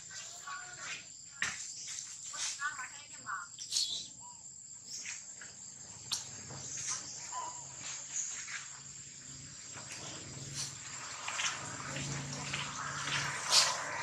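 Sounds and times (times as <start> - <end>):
high-pitched insect drone: 3.5 - 14.0.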